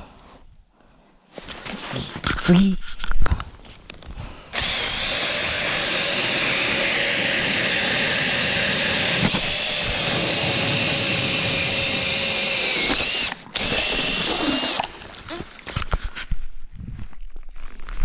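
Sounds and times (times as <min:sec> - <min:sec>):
drill motor whine: 0:04.5 - 0:15.1
ice auger churning: 0:04.5 - 0:16.0.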